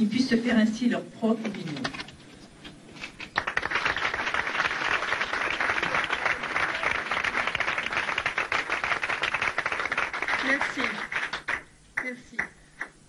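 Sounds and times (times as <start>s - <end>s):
audience applauding: 3.2s - 11.7s.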